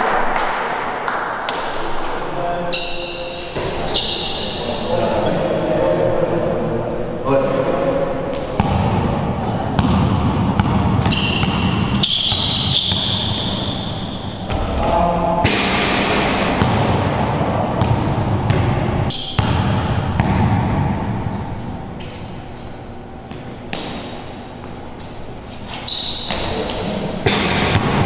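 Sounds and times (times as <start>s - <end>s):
sneakers squeaking: 1.5s - 6.1s, 7.5s - 15.4s, 16.3s - 28.0s
basketball dribbling on court: 8.3s - 14.9s, 15.8s - 22.7s, 23.3s - 24.8s, 26.2s - 28.0s
ball hitting the rim: 8.3s - 22.2s, 23.3s - 24.4s, 26.2s - 28.0s.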